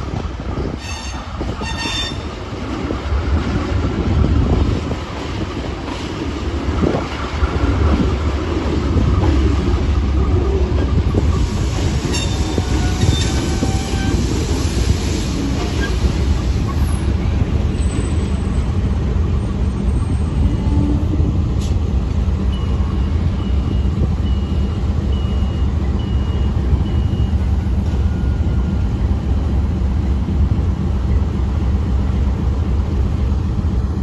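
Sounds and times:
train rumbling along track: 0.0 - 34.0
wheels squealing on rail: 0.5 - 2.4, 10.2 - 14.7, 15.6 - 18.8.

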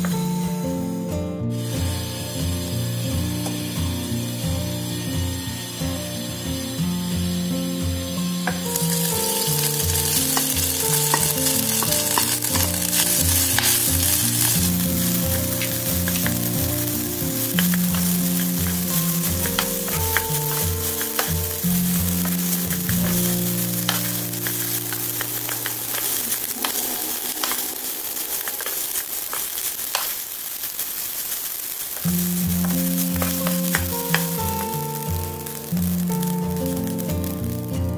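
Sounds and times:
rice sizzling in hot oil: 0.8 - 37.9
wooden spatula scraping a pan: 8.4 - 30.4, 32.0 - 37.0.

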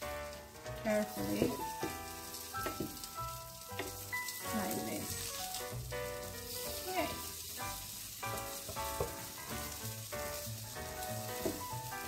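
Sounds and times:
background music: 0.0 - 12.0
patties sizzling in a frying pan: 0.0 - 12.0.

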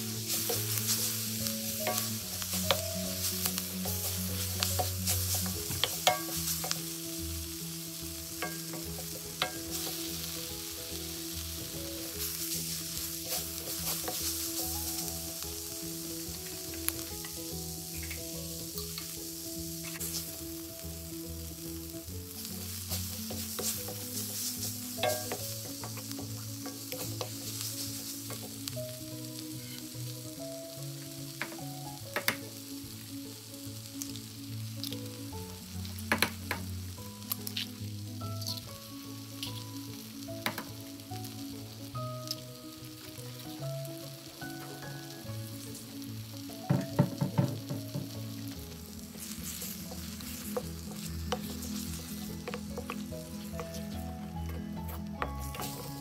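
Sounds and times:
wooden spatula scraping a pan: 0.0 - 30.3, 46.6 - 56.0
leaves and onions sizzling in a wok: 0.0 - 56.0.

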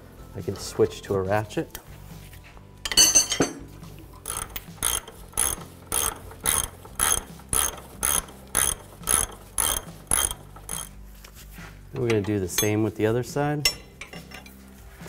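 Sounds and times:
hand ratchet clicking: 4.2 - 11.0.

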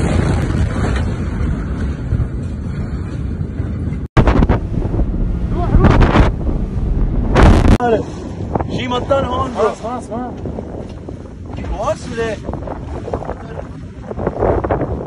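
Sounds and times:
motorboat running at speed: 0.0 - 15.0
water rushing in wake: 0.0 - 15.0
wind buffeting microphone: 0.0 - 15.0
low rumble: 0.7 - 8.6.

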